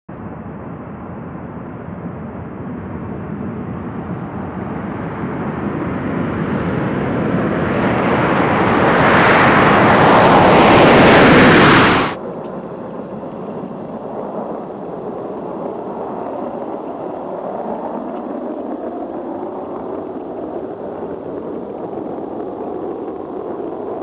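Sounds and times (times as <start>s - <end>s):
jet engine roar: 7.7s - 24.0s.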